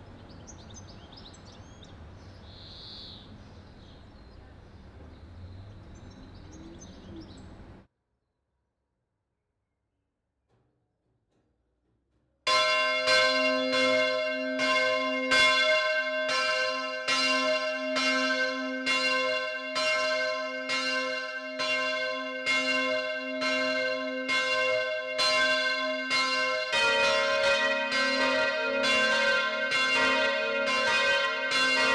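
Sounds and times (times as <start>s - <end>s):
church bell ringing: 12.5s - 31.9s.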